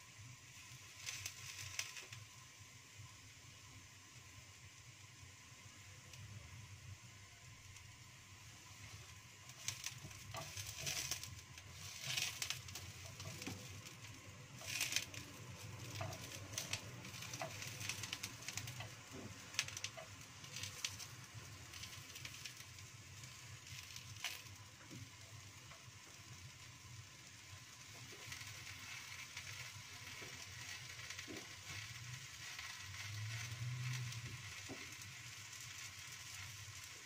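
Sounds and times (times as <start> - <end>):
food sizzling in a wok: 0.0 - 37.0
chopsticks tapping a pan: 11.7 - 21.1.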